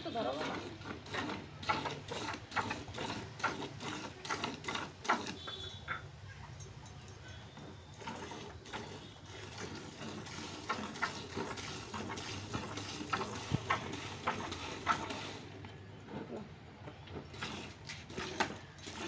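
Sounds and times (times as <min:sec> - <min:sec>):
milk squirting into a bucket: 0:00.2 - 0:05.6, 0:08.0 - 0:15.5, 0:16.9 - 0:18.8.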